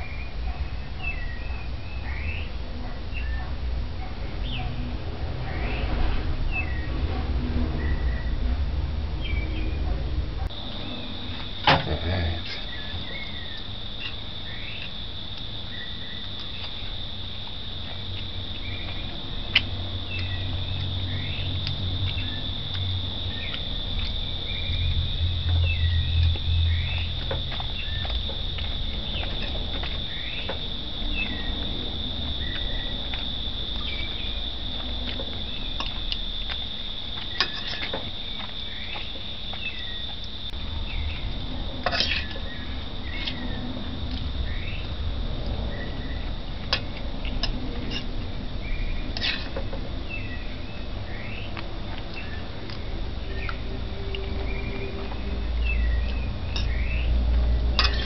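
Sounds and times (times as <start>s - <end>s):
crickets trilling: 0.0s - 58.0s.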